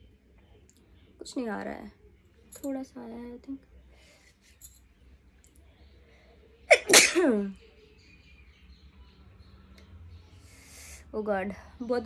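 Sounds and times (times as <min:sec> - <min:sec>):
woman sneezing: 0:06.7 - 0:07.5.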